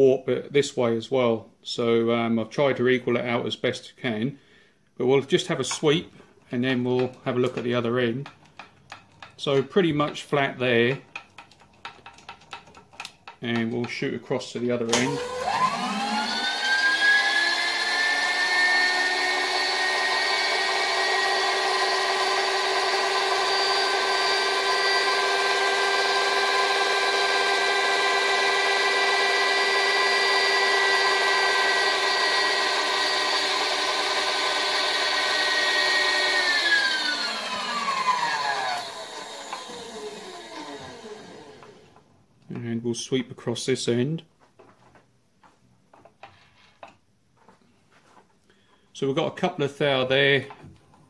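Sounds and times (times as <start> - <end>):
table feed motor whining: 14.9 - 41.9.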